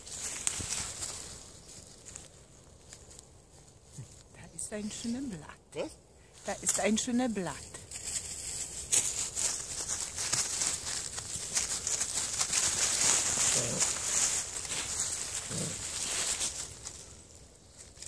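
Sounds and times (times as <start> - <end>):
dry leaves rustling: 0.0 - 18.0
puppy grunts: 15.5 - 15.8.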